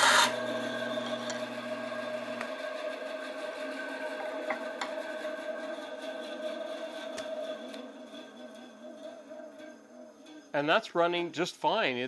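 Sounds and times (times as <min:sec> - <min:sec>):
bandsaw running: 0:00.0 - 0:08.4.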